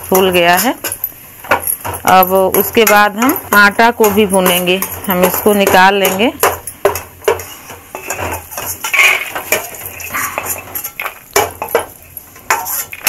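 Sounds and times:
metal spatula scraping steel pan: 7.3s - 11.8s, 12.4s - 13.0s.

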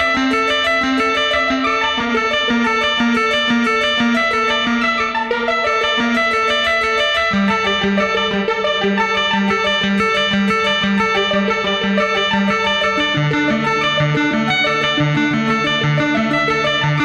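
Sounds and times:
synth arpeggio: 0.0s - 17.0s
pulsing synth bass note: 7.4s - 17.0s.

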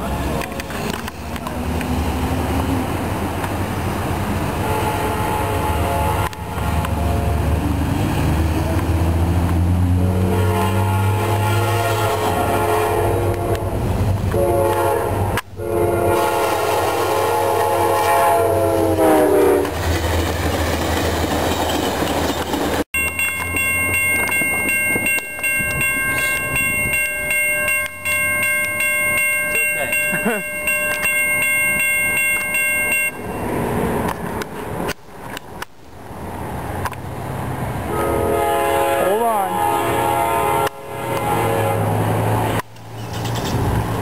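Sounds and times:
train rushing past: 0.0s - 35.4s, 36.0s - 44.0s
locomotive horn: 4.6s - 7.6s, 9.9s - 19.8s, 37.8s - 42.4s.

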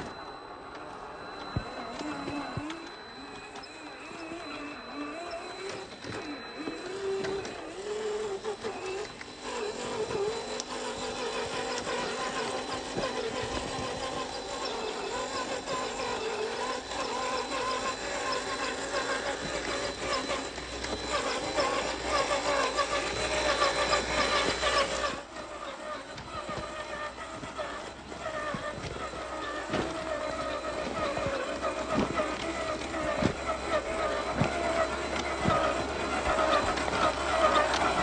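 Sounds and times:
electric motor and transmission whining: 0.0s - 38.0s.

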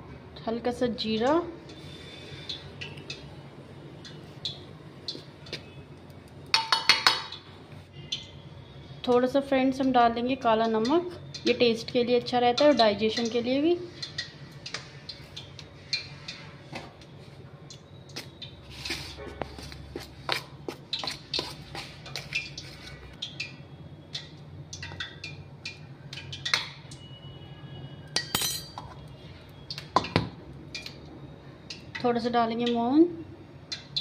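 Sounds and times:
metal spoon clinking against bowl: 28.2s - 29.0s.

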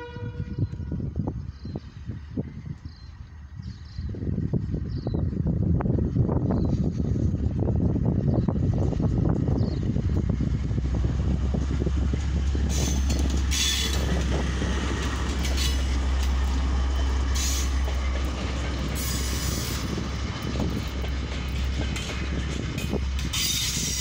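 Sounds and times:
diesel locomotive engine rumbling: 0.0s - 24.0s
wagons rolling on rails: 12.1s - 24.0s.

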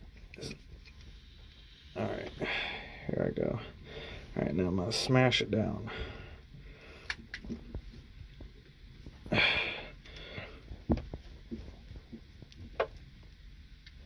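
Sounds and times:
person breathing: 2.1s - 4.4s, 5.8s - 7.3s, 9.2s - 10.8s.

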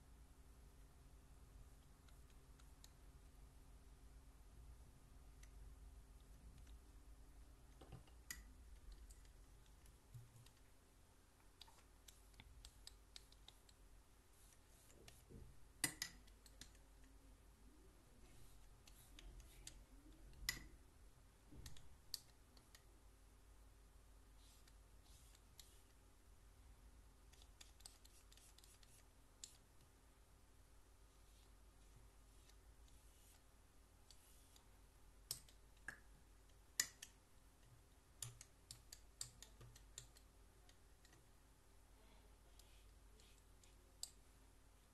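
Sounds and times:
painting tools clicking and tapping: 14.6s - 16.9s.

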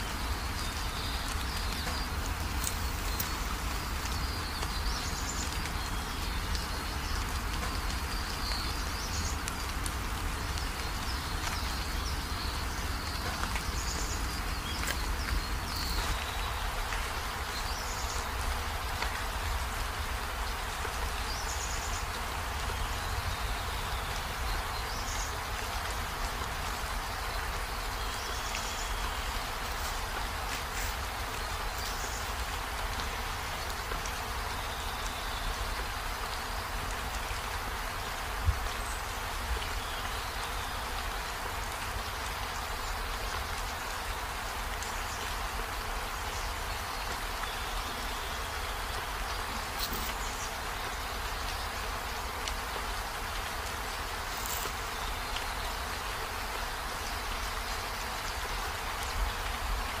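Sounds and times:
insects buzzing: 54.2s - 54.8s.

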